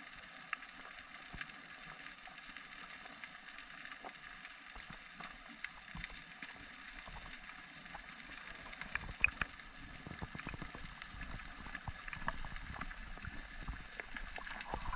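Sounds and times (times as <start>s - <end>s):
underwater clicks and crackles: 0.0s - 14.9s
low underwater rumble: 5.9s - 14.9s.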